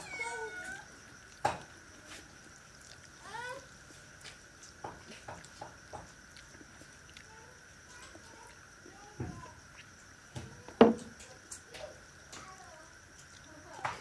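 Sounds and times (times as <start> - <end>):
chewing mouth clicks: 2.7 - 3.2, 6.3 - 7.3
sharp knock: 10.8 - 11.1.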